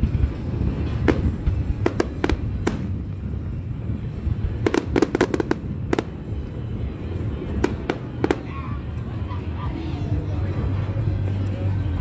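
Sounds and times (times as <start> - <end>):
low rumble: 0.0 - 12.0
fireworks bangs: 0.7 - 3.3, 4.4 - 6.4, 7.6 - 8.5.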